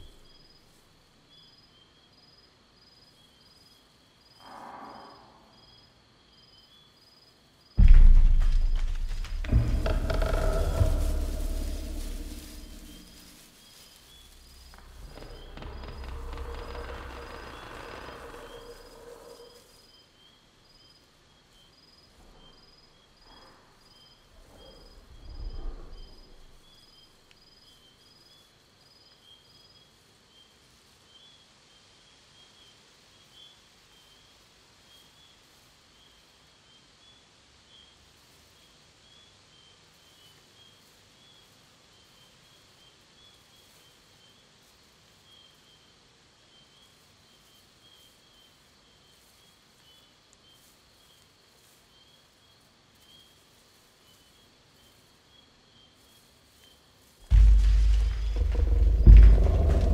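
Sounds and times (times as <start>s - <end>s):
faint hiss: 0.0s - 59.9s
insects chirping: 0.0s - 59.9s
deep wooden creaking groan: 7.8s - 13.5s, 14.2s - 19.7s, 57.3s - 59.9s
heavy low thud: 7.8s - 13.5s, 57.3s - 59.9s.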